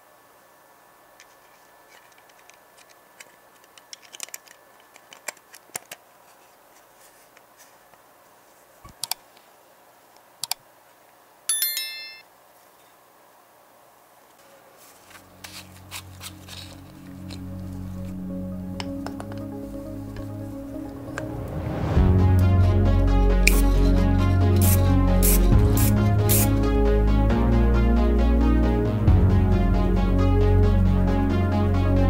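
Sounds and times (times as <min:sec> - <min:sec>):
model parts clicking together: 0:01.9 - 0:06.0, 0:08.9 - 0:09.2, 0:10.4 - 0:10.6
bright metallic ping: 0:11.5 - 0:12.3
music: 0:15.3 - 0:32.0.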